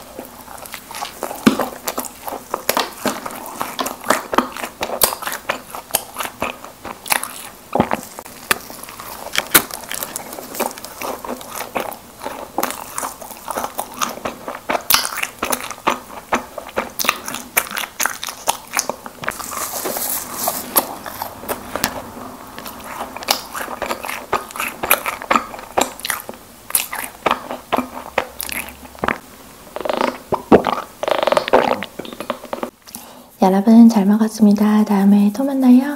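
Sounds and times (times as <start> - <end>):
biting and chewing doughnuts: 0.0 - 33.0
mouth clicks: 22.6 - 33.0.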